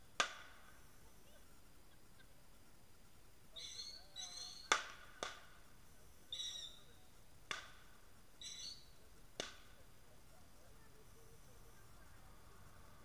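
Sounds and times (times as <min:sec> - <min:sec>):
faint sharp pops: 0:00.2 - 0:00.7, 0:04.6 - 0:05.6, 0:07.4 - 0:08.0, 0:09.3 - 0:09.8.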